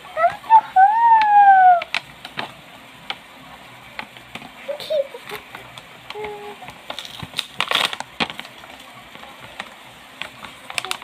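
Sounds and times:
packaging crinkling and crackling: 0:06.1 - 0:11.0.

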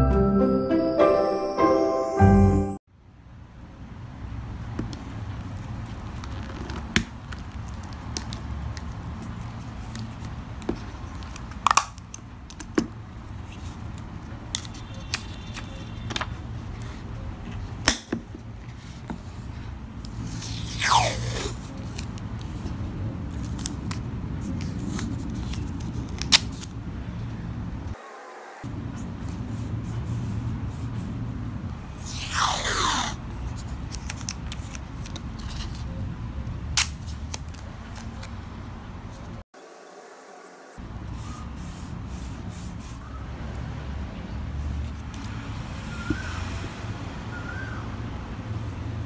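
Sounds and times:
falling swish: 0:28.0 - 0:28.7, 0:32.0 - 0:33.2
paper rustling: 0:32.9 - 0:35.9.

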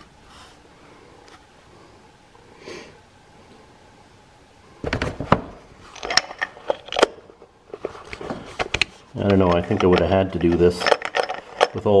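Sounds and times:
socket wrench clinking on metal: 0:09.4 - 0:11.9.

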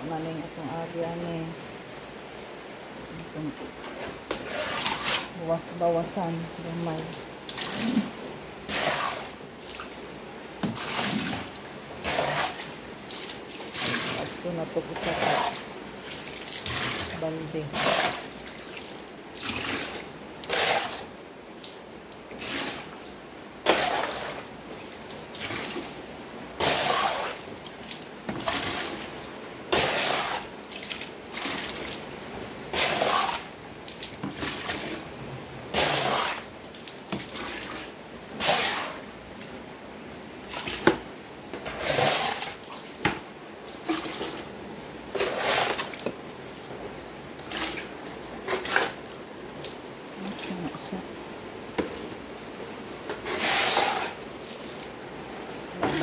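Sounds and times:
water scooped and splashing: 0:07.5 - 0:23.0, 0:23.7 - 0:24.4, 0:25.3 - 0:26.0, 0:26.6 - 0:29.2, 0:29.8 - 0:32.1, 0:32.7 - 0:39.0, 0:41.6 - 0:44.5, 0:45.1 - 0:46.8, 0:47.4 - 0:50.9.

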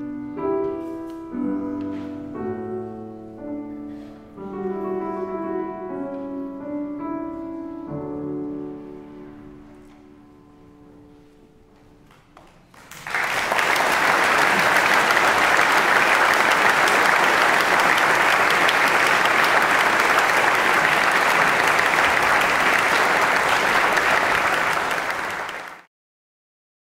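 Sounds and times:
audience applause: 0:12.7 - 0:25.9.

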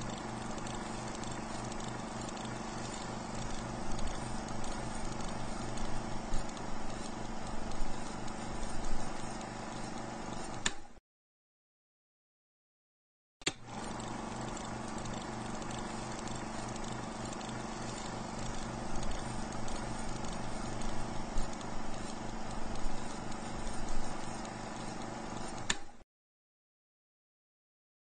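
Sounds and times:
film projector running: 0:00.0 - 0:11.0, 0:13.5 - 0:26.0
projector switch click: 0:10.6 - 0:10.9, 0:13.4 - 0:13.7, 0:25.6 - 0:26.0.

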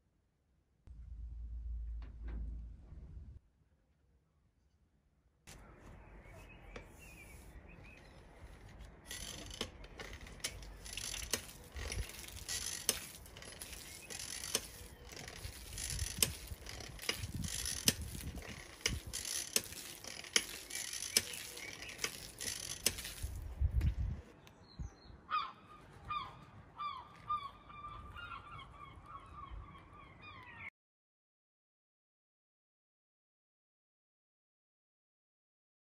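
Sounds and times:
hand pump knocking: 0:09.1 - 0:23.3
bird calling: 0:25.1 - 0:30.7.

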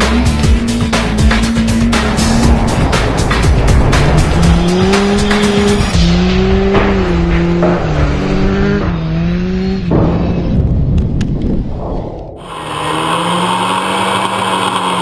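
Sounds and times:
race car engine running hard: 0:00.0 - 0:10.5, 0:12.4 - 0:15.0
background music: 0:00.0 - 0:11.0.

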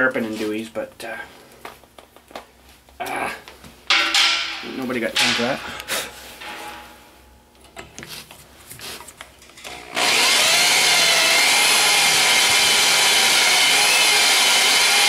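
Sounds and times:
electric drill boring into metal: 0:09.6 - 0:15.0.

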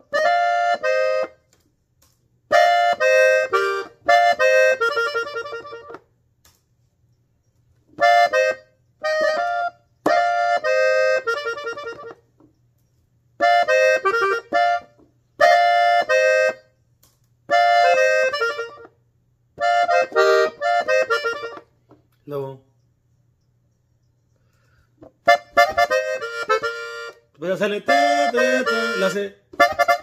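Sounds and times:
button accordion melodic runs: 0:00.0 - 0:01.5, 0:02.5 - 0:06.0, 0:08.0 - 0:12.3, 0:13.4 - 0:16.8, 0:17.5 - 0:19.0, 0:19.6 - 0:21.8, 0:25.2 - 0:30.0.

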